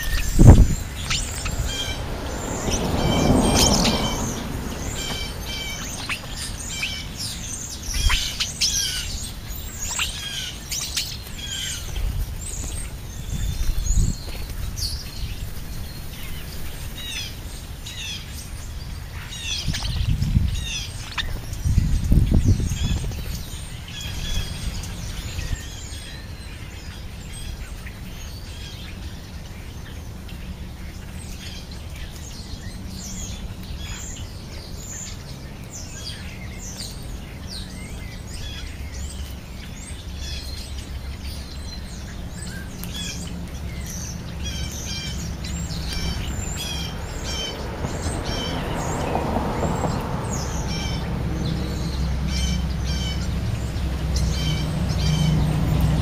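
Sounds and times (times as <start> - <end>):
car passing: 0.0 - 10.7, 22.7 - 56.0
birds chirping and calling: 0.0 - 56.0
low traffic rumble: 0.0 - 56.0.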